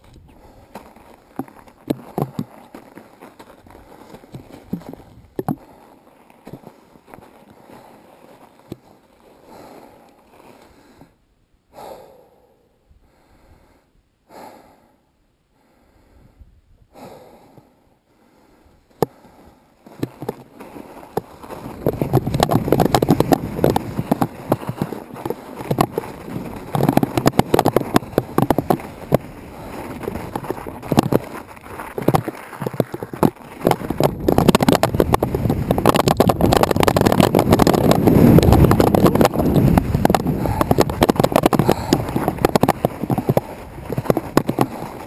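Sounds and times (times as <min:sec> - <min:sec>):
footsteps crunching in snow: 0:00.0 - 0:11.0, 0:19.2 - 0:45.0
soft breaths: 0:00.2 - 0:01.7, 0:02.4 - 0:21.8, 0:27.8 - 0:32.6, 0:40.3 - 0:43.8
wind buffeting microphone: 0:21.6 - 0:32.2, 0:33.2 - 0:45.0.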